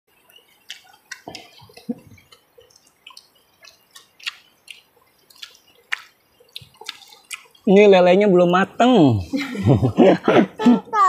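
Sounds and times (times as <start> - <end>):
wet eating clicks and lip smacks: 0.3 - 7.7.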